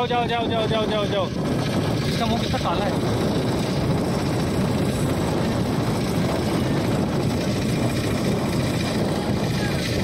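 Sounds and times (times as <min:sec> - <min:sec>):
motorboat engine drone: 0:00.0 - 0:10.0.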